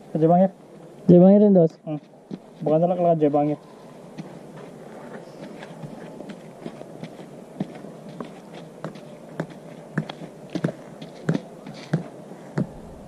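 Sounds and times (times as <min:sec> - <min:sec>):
footsteps on ground: 0:01.9 - 0:03.1, 0:04.1 - 0:12.8.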